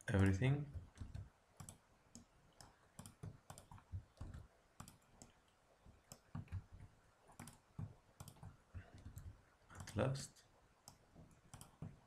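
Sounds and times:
computer keyboard clicks: 0:00.2 - 0:05.3, 0:07.4 - 0:07.6, 0:08.2 - 0:10.0, 0:10.9 - 0:12.0
mouse clicks: 0:01.0 - 0:05.4, 0:07.4 - 0:10.0, 0:10.8 - 0:12.0.

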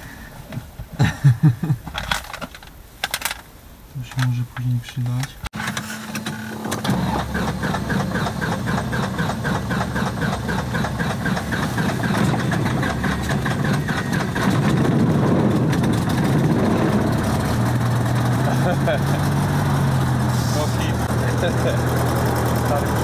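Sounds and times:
propeller engine from inside cabin: 0:06.5 - 0:23.0.

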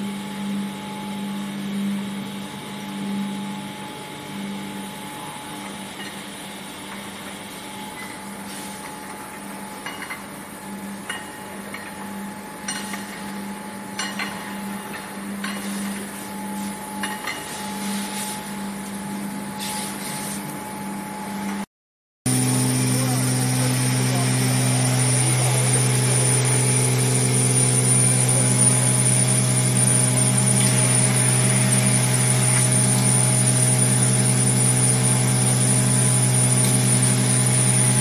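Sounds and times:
machinery hum: 0:22.3 - 0:38.0.

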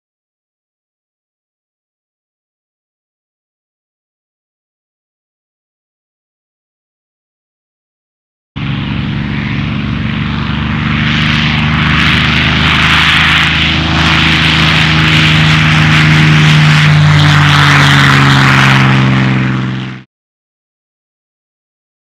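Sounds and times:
heavy wind rush: 0:08.6 - 0:20.0
engine drone: 0:08.6 - 0:20.1.

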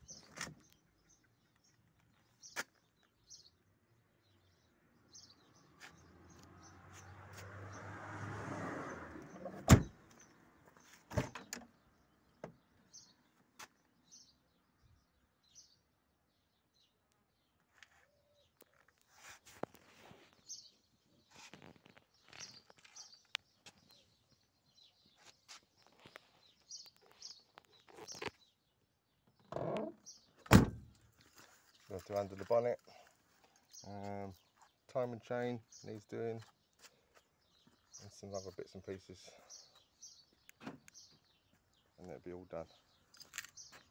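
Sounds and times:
birds chirping: 0:00.0 - 0:07.9, 0:08.8 - 0:43.9
car door shutting: 0:09.3 - 0:10.0, 0:30.5 - 0:30.9.

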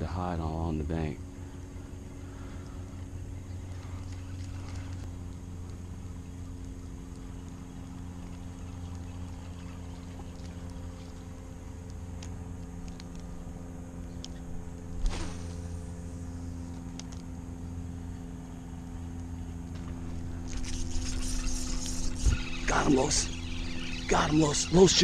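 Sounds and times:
low mechanical hum: 0:00.0 - 0:25.0
faint clicks: 0:11.8 - 0:13.3.

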